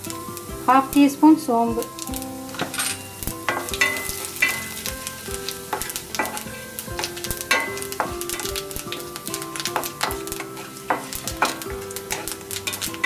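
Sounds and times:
seeds sizzling in hot oil: 0.0s - 13.0s
wooden spatula scraping pan: 9.5s - 13.0s.

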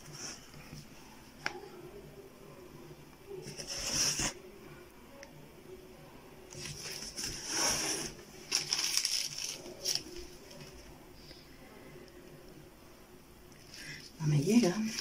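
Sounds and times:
foil tray rustling and crackling: 8.4s - 10.2s.

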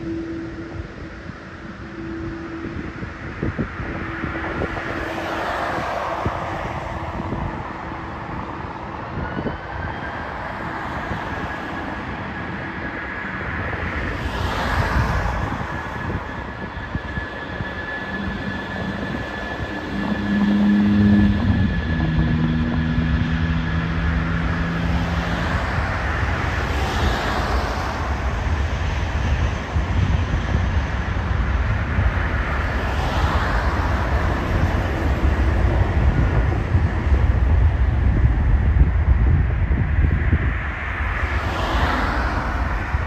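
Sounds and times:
vehicles swishing past: 0.0s - 9.4s, 17.6s - 38.9s, 40.0s - 43.0s
steady low traffic rumble: 0.0s - 43.0s.

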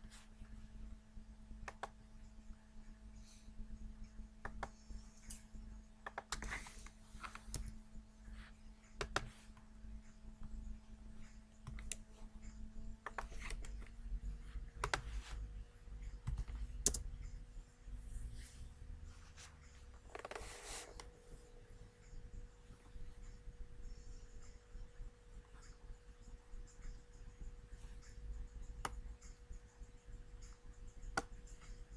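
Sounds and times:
faint electrical hum: 0.0s - 31.9s
keyboard and mouse clicks: 1.6s - 2.0s, 4.4s - 7.8s, 8.9s - 9.4s, 11.5s - 12.2s, 13.0s - 14.0s, 14.8s - 15.2s, 16.2s - 17.4s.

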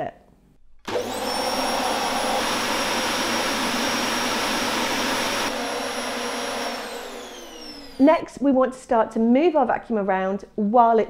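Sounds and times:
vacuum cleaner running: 0.8s - 8.4s
vacuum motor spinning down: 0.9s - 8.3s.

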